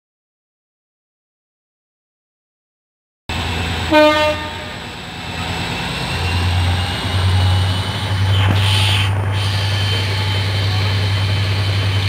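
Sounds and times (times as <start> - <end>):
diesel engine drone: 3.3 - 12.0
train horn toot: 3.8 - 4.9.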